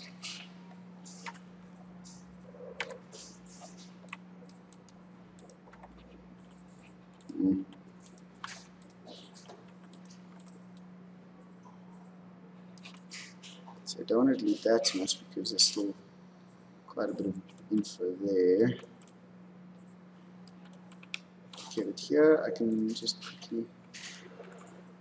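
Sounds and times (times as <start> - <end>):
low electrical hum: 0.0 - 25.0
computer keyboard key presses: 20.6 - 21.2.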